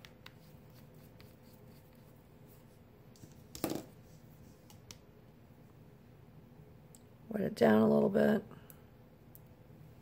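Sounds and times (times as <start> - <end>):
plastic item knocking on table: 3.6 - 3.9.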